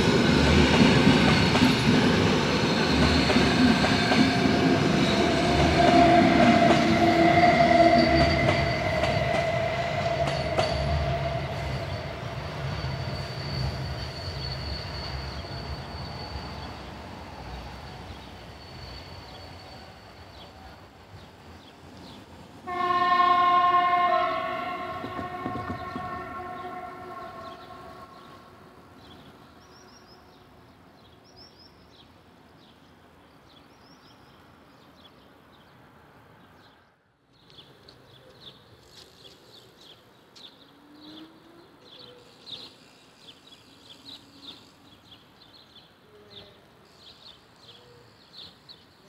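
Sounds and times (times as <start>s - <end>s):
train horn: 5.5s - 12.1s, 22.6s - 28.8s.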